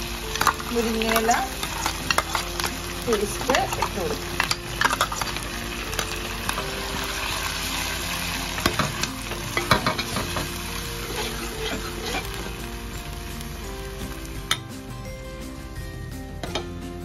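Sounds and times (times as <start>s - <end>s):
paste sizzling in hot oil: 0.0s - 14.9s
metal spoon scraping a pan: 0.3s - 2.8s, 3.4s - 6.8s, 8.6s - 12.6s.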